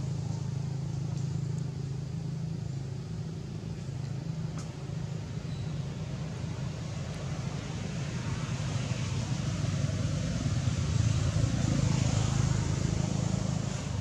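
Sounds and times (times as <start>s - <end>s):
road traffic rumble: 0.0s - 14.0s.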